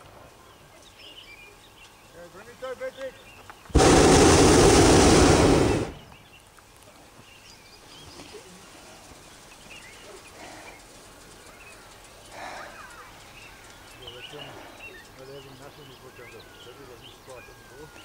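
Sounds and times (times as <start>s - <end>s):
faint bird chirps: 0.1s - 3.7s, 5.9s - 18.0s
propane burner roaring: 3.7s - 6.2s.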